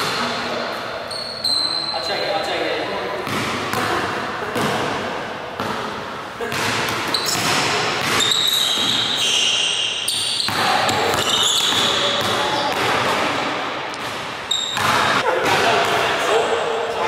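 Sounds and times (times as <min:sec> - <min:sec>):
sneakers squeaking on floor: 0:01.0 - 0:02.4, 0:06.5 - 0:13.0, 0:14.0 - 0:15.2.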